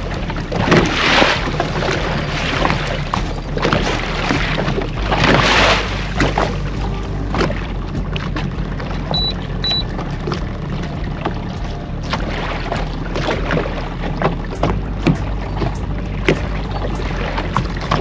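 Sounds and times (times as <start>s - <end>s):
outboard motor humming: 0.0s - 18.0s
short high electronic beeps: 9.1s - 9.9s
knocks and clicks: 14.2s - 18.0s.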